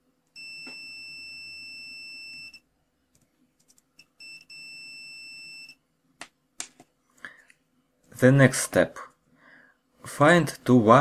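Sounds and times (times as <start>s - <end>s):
multimeter continuity beep: 0.3s - 2.7s, 4.0s - 5.8s.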